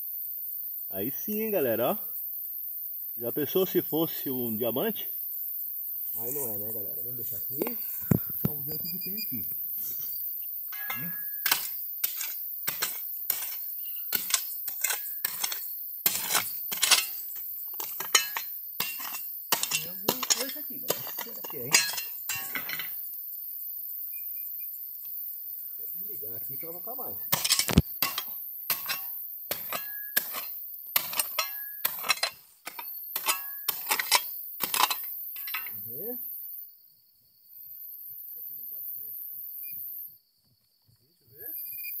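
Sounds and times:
trowel clinking on stony soil: 0:10.0 - 0:23.0, 0:27.2 - 0:35.8
shovel crunching into gravel: 0:10.8 - 0:17.2, 0:27.3 - 0:35.6.

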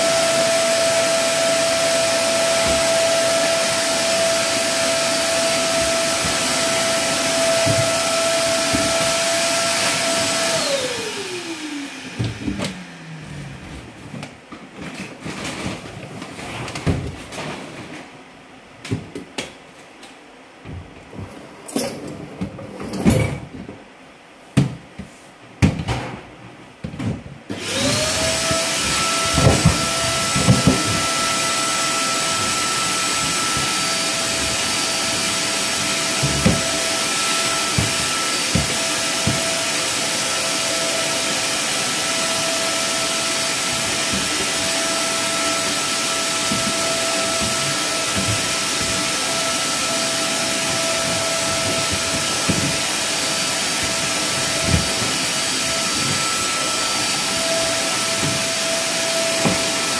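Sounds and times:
vacuum cleaner running: 0:00.0 - 0:18.0, 0:26.8 - 0:59.9
vacuum knocking against floor: 0:28.2 - 0:31.3, 0:36.0 - 0:39.6, 0:46.4 - 0:49.1, 0:50.6 - 0:56.6, 0:59.3 - 0:59.8.

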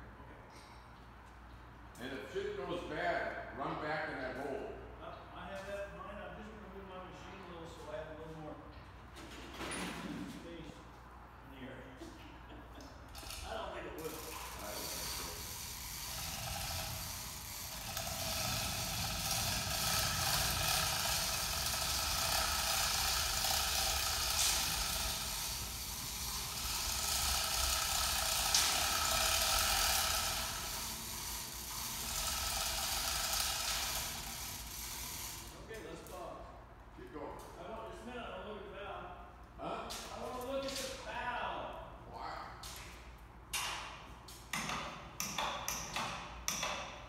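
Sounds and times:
electric chain hoist motor whine: 0:13.1 - 0:35.7.

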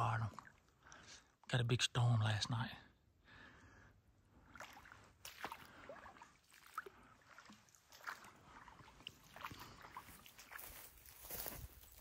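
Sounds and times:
footsteps squelching through mud: 0:04.6 - 0:12.0.

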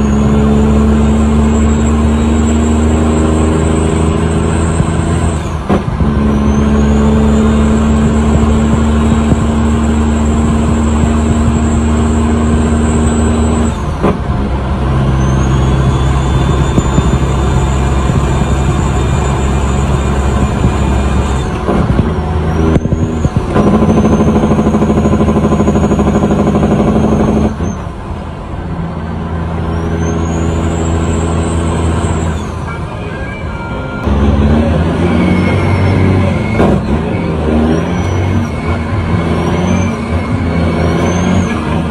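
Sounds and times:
diesel truck engine under load: 0:00.0 - 0:41.9
turbo whistle: 0:15.0 - 0:21.5, 0:34.9 - 0:41.7.

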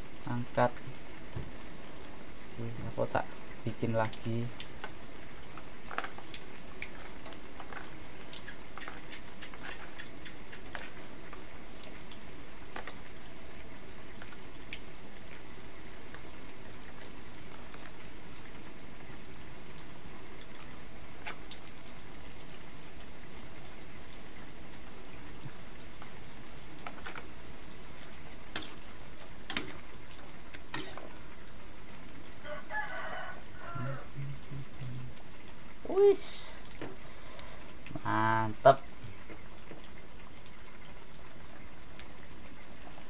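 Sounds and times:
soup simmering with bubbling hiss: 0:00.0 - 0:43.0
pops and crackles: 0:04.6 - 0:13.2, 0:20.4 - 0:22.5, 0:25.4 - 0:27.4, 0:28.0 - 0:31.2.

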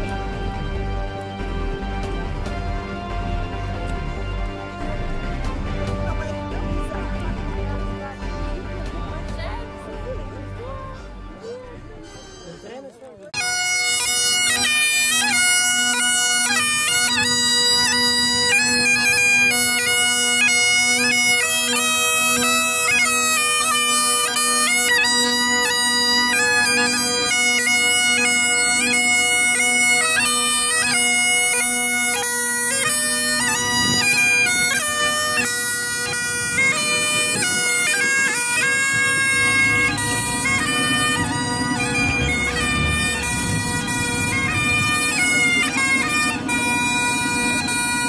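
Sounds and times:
bagpipes playing a tune: 0:00.0 - 0:48.0.

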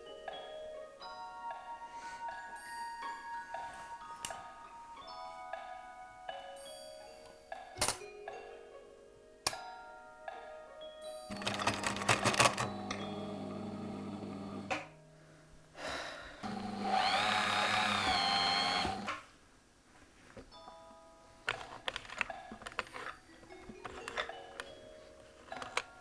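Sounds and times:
chiming music notes: 0:00.0 - 0:11.7, 0:12.6 - 0:14.4
sewing machine stitching: 0:11.3 - 0:14.7, 0:16.4 - 0:19.2.

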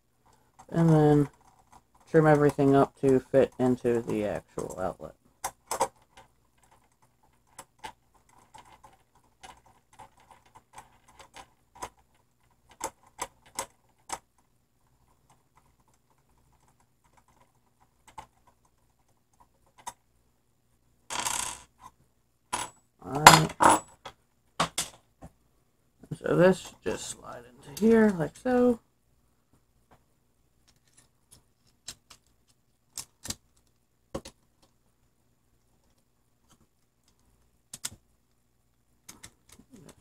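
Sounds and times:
metal tools clattering on wood: 0:22.6 - 0:24.0
small metal parts clicking: 0:30.6 - 0:34.7.

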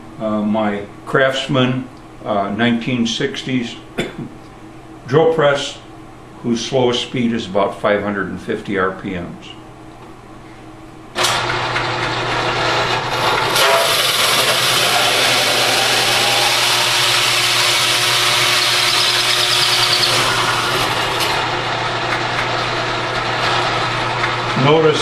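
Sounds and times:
drill press motor hum: 0:11.1 - 0:25.0
hole saw cutting plywood: 0:11.2 - 0:24.6.

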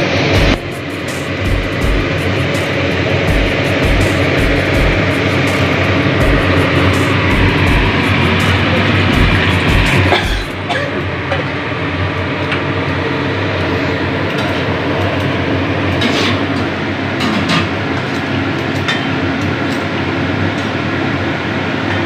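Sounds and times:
rumbling background noise: 0:00.0 - 0:18.9
ladle clinking and scraping wok: 0:15.9 - 0:19.2.

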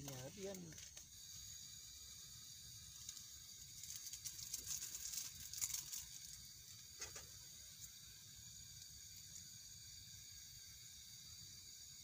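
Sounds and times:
steady background hiss: 0:00.0 - 0:12.0
plastic sachets crinkling: 0:03.8 - 0:06.4.

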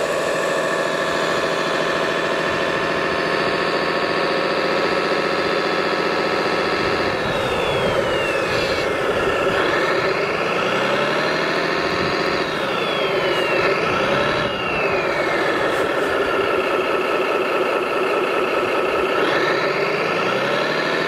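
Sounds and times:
high motor whine: 0:00.0 - 0:21.0
toy truck engine sound: 0:00.0 - 0:21.0.

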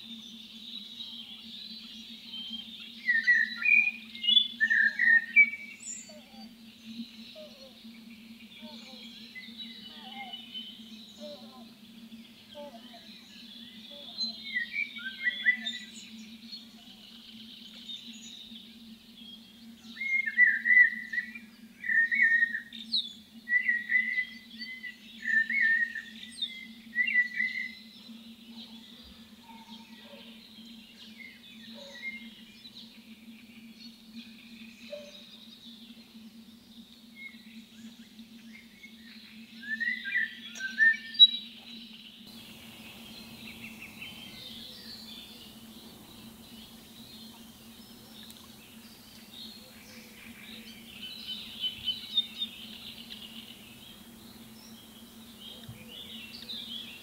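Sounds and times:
bird song phrases: 0:00.0 - 0:57.0
birds chattering: 0:42.2 - 0:57.0.

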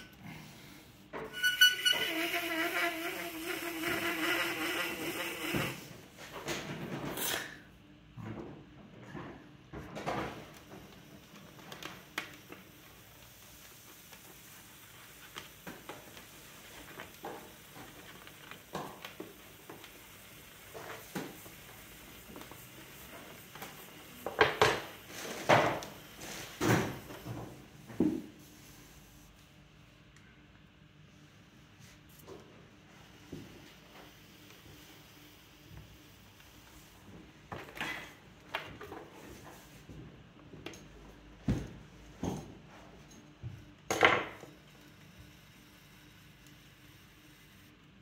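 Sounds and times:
tool scraping clay: 0:01.3 - 0:05.9.

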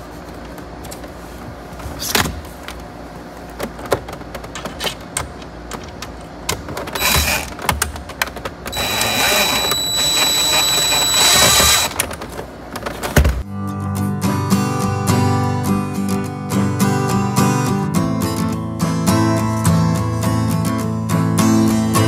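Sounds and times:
cordless drill whining: 0:07.0 - 0:07.5, 0:08.7 - 0:12.0.

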